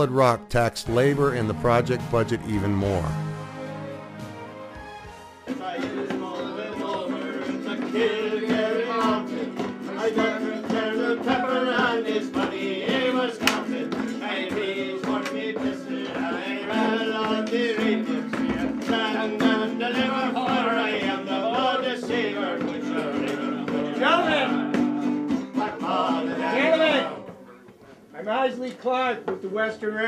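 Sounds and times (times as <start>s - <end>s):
man singing: 0.0s - 3.3s, 5.5s - 24.8s
acoustic guitar strumming: 0.0s - 27.2s.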